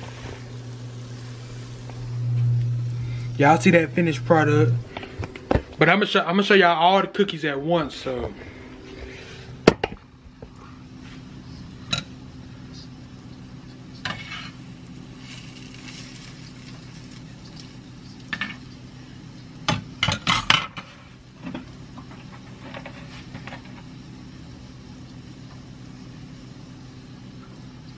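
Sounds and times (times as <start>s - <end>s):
frying oil sizzling: 0.0s - 4.9s, 13.2s - 20.1s
steady low hum: 0.0s - 27.9s.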